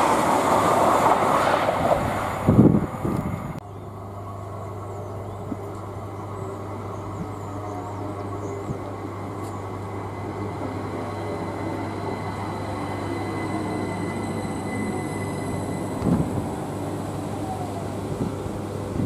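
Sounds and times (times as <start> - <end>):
train wheels rumbling on rail: 0.0 - 3.6, 4.7 - 19.0
thin high whine: 4.3 - 18.9.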